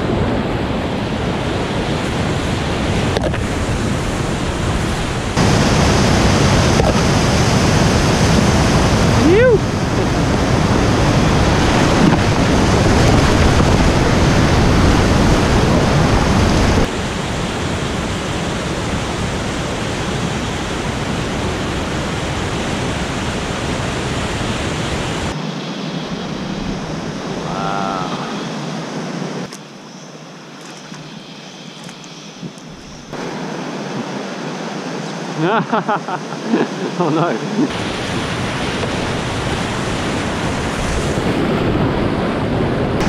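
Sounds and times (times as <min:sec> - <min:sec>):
whitewater rushing over rocks: 0:00.0 - 0:25.4, 0:33.1 - 0:41.5.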